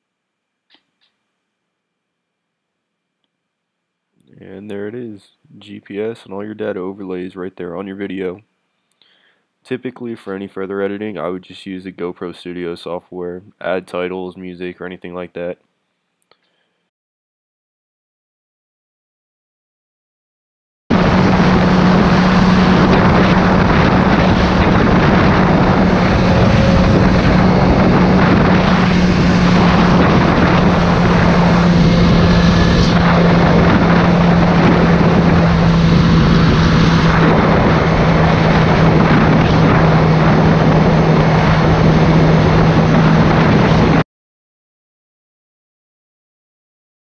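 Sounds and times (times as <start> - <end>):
motorcycle engine drone: 20.9 - 44.0
wind rush on microphone: 20.9 - 44.0.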